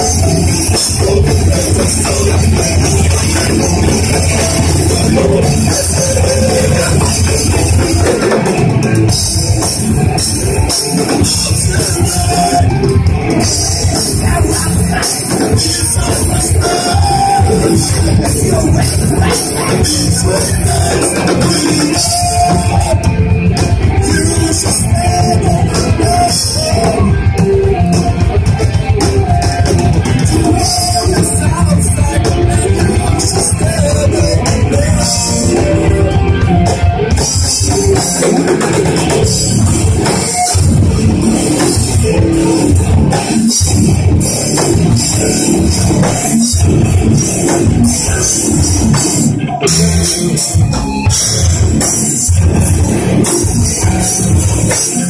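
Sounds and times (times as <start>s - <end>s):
distorted electric guitars: 0.0s - 55.0s
pounding drum kit: 0.0s - 55.0s.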